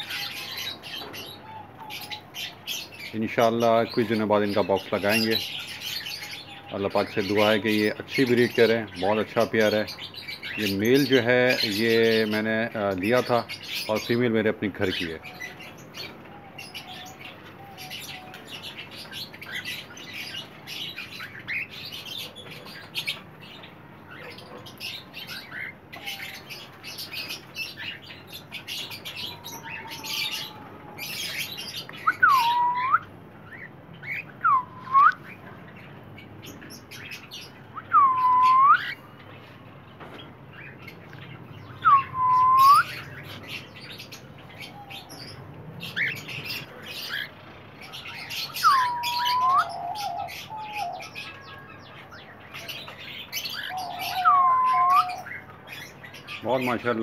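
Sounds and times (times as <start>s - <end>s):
cockatiel whistles: 32.1s - 33.1s, 37.8s - 39.0s, 41.9s - 43.0s, 48.6s - 49.7s, 54.2s - 55.2s.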